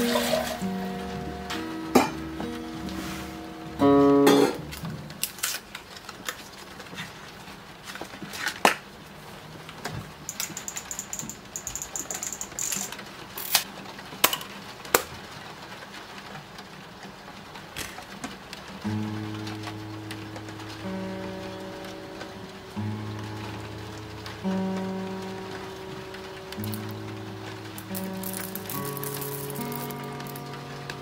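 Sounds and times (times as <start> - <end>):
guitar chord strummed: 0.0 - 5.0, 18.9 - 31.0
film camera clicks and rattles: 10.3 - 13.7.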